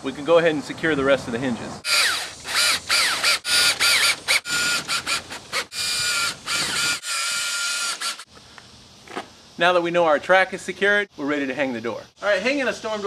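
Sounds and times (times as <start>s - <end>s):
cordless drill motor whining: 1.9s - 8.3s.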